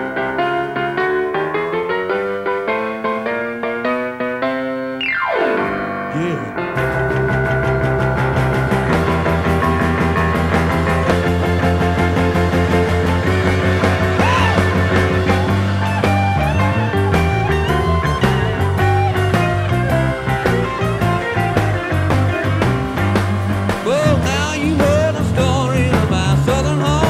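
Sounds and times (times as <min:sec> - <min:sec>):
grand piano: 0:00.0 - 0:27.0
gliding bent notes: 0:05.0 - 0:26.0
bass line: 0:05.0 - 0:27.0
drum beat: 0:06.2 - 0:27.0.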